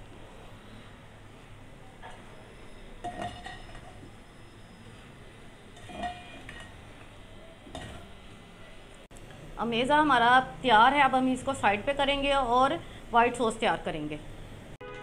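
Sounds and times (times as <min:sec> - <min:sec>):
spatula clanking on metal pot: 0:05.8 - 0:06.8.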